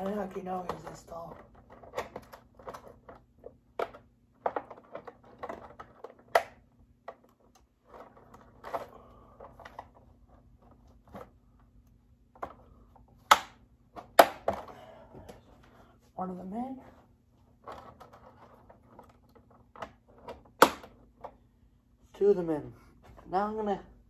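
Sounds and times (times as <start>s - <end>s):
faint steady hum: 0.0s - 24.0s
sharp plastic snap: 6.3s - 6.6s, 13.2s - 14.6s, 20.6s - 21.0s.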